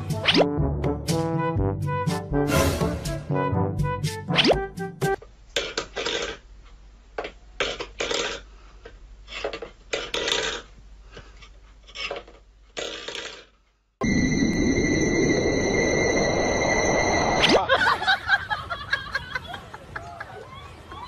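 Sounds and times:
metal bowl scraping on wooden floor: 11.8s - 13.4s.

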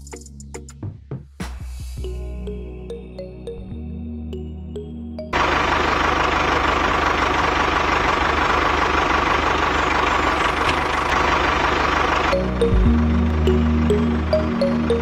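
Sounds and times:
music: 0.0s - 5.4s, 12.3s - 15.0s
tractor engine idling: 5.3s - 15.0s.

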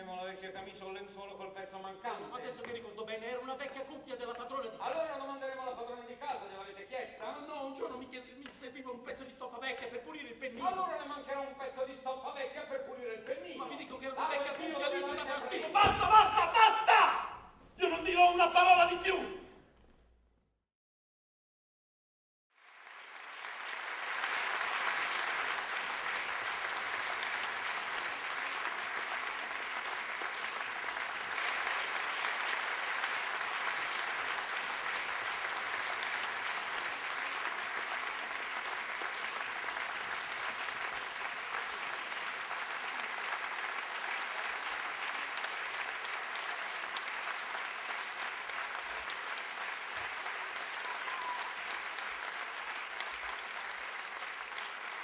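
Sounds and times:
audience applauding: 13.6s - 16.9s, 22.5s - 55.0s.

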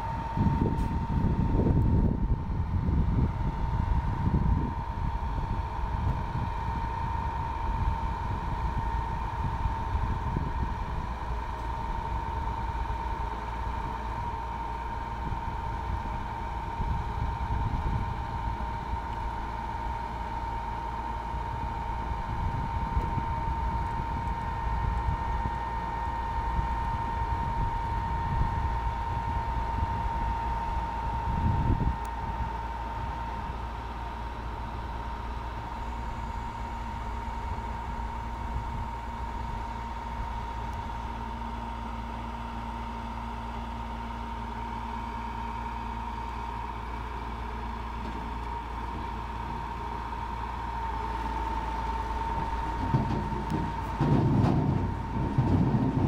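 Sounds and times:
wind buffeting microphone: 0.0s - 14.4s, 15.1s - 19.6s, 21.4s - 33.7s, 36.2s - 41.0s
harvester machine whining: 0.0s - 56.0s.

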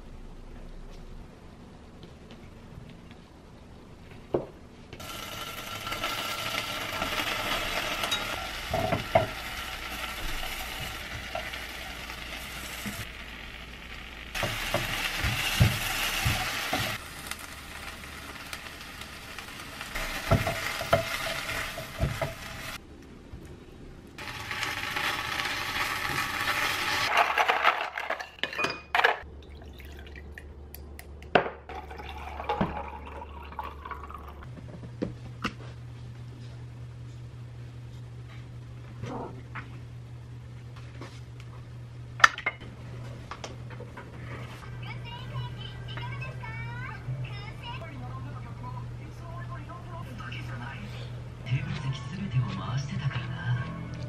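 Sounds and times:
food sizzling in a frying pan: 5.0s - 22.8s, 24.2s - 27.1s.

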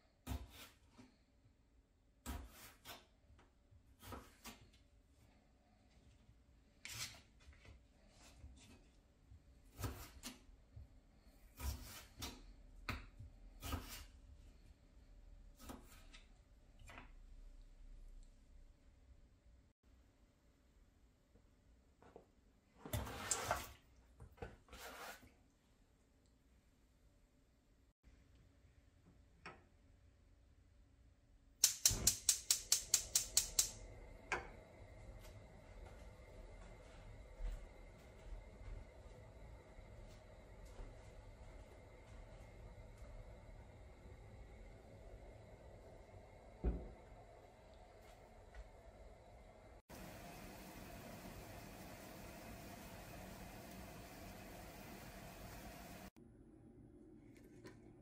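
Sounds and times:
knife cutting potato: 0.1s - 1.1s, 2.2s - 4.8s, 9.6s - 10.5s, 11.4s - 14.2s, 15.5s - 16.4s
stove igniter clicking: 31.6s - 33.8s
gas flame rushing: 48.9s - 56.2s.

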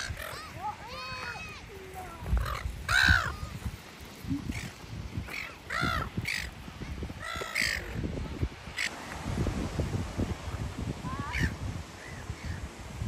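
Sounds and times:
gulls squawking: 0.0s - 3.6s, 4.4s - 8.0s, 11.2s - 12.6s.

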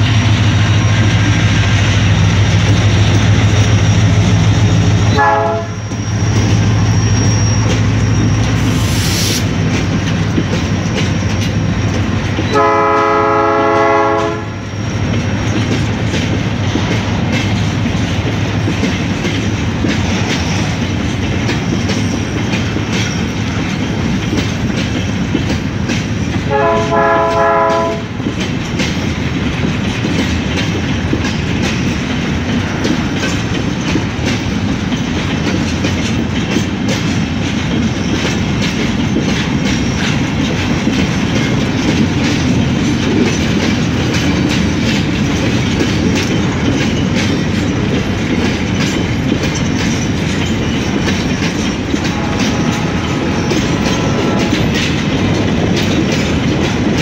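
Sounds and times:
train wheels clickety-clack: 0.0s - 57.0s
locomotive horn: 5.1s - 5.9s, 12.5s - 14.6s, 26.5s - 28.2s, 52.0s - 54.8s.

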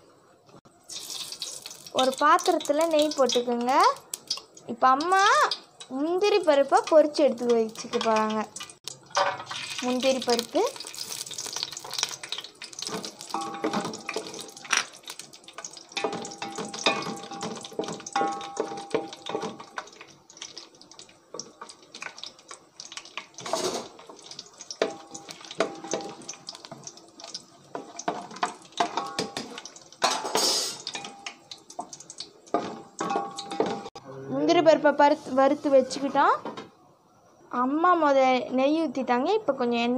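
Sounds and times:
nuts sizzling in oil: 0.7s - 34.0s
wooden spoon scraping a pot: 23.4s - 24.1s, 30.2s - 31.0s.

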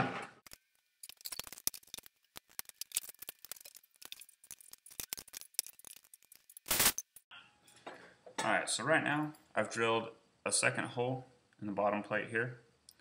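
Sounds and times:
small metal parts clinking: 0.5s - 7.2s.

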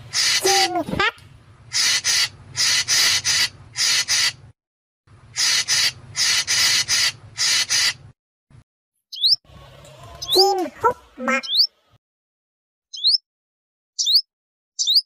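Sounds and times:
bird rasping chatter: 0.0s - 4.5s, 5.3s - 8.2s, 9.1s - 11.8s.

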